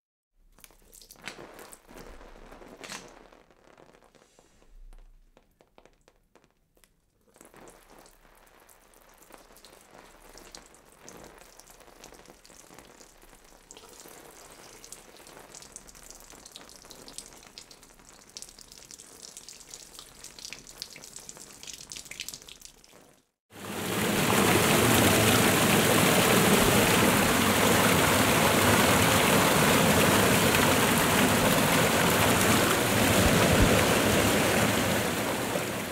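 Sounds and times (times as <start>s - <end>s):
water spraying onto body: 23.6s - 35.9s
waterfall rushing: 23.6s - 35.9s.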